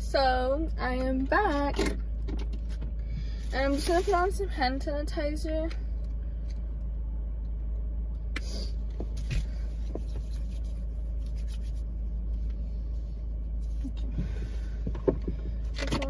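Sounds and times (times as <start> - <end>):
low rumble inside car: 0.0 - 16.0
hands rubbing: 9.8 - 11.9.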